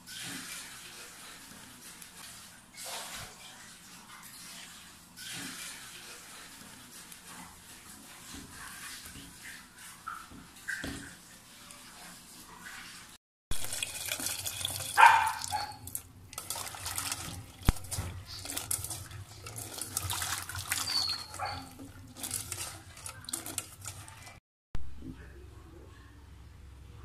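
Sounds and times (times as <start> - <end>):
hands rubbing chilies in water: 11.9 - 24.4
water splashing in steel bowl: 12.6 - 24.4.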